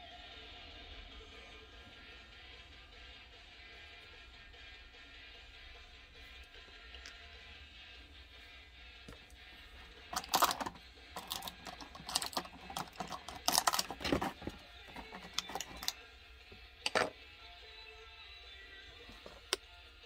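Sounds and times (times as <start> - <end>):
faint background music: 0.0 - 20.0
small plastic parts clicking: 10.1 - 16.0.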